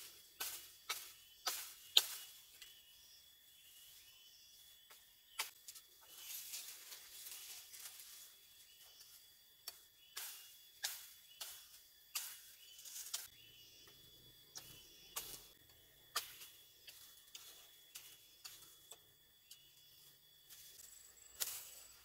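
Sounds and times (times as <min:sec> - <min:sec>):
faint high insect tone: 0:00.0 - 0:22.0
machete chopping branches: 0:00.4 - 0:02.4, 0:05.3 - 0:05.7, 0:09.7 - 0:13.3.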